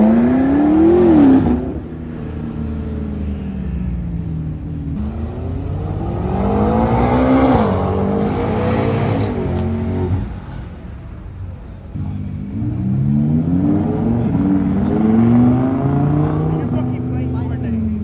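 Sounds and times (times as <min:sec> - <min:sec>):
engine revving: 0:00.0 - 0:01.8, 0:05.0 - 0:10.3, 0:12.0 - 0:17.8
car engine accelerating: 0:00.0 - 0:10.6, 0:11.5 - 0:18.0.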